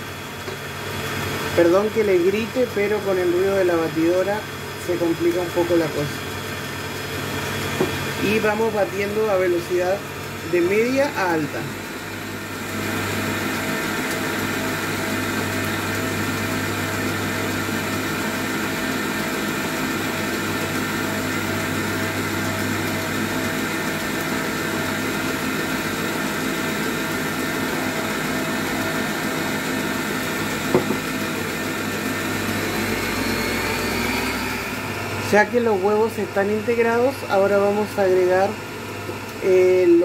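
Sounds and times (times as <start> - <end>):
stand mixer whipping batter: 0.0 - 40.0
brief knock: 30.7 - 31.0.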